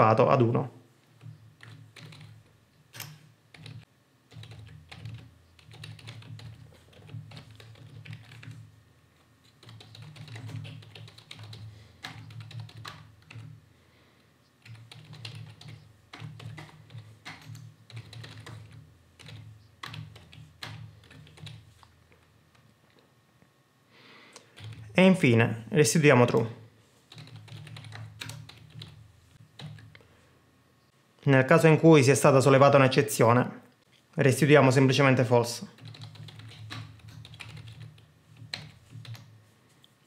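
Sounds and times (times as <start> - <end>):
keyboard typing: 1.1 - 13.6, 14.6 - 23.0, 24.4 - 25.0, 27.1 - 30.1, 35.7 - 39.4.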